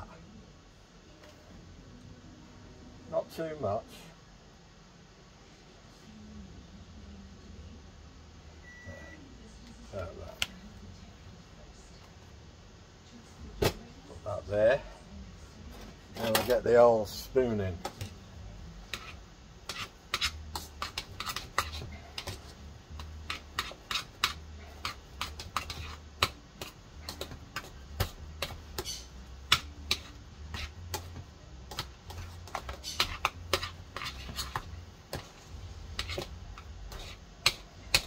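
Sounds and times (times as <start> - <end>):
low steady hum: 0.0 - 38.0
spoon scraping steel saucepan: 32.1 - 35.3, 35.9 - 38.0.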